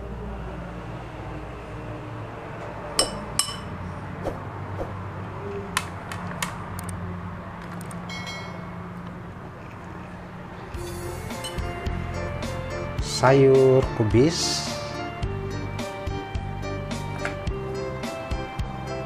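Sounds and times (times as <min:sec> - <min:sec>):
metal spoon clinking on ceramic: 0:03.0 - 0:03.8, 0:11.4 - 0:11.7.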